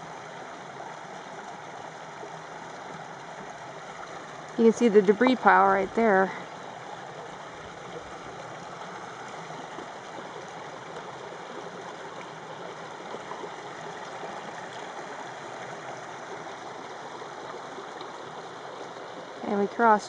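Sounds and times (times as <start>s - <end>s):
creek water flowing over rocks: 0.0s - 20.0s.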